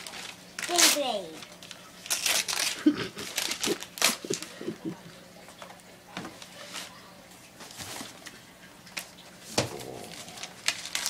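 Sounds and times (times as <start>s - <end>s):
wrapping paper crinkling and tearing: 0.0s - 4.8s, 9.7s - 11.0s.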